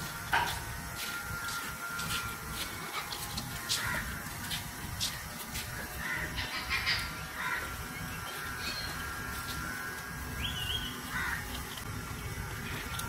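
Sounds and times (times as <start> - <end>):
parrots squawking: 5.8 - 9.1, 10.4 - 11.8.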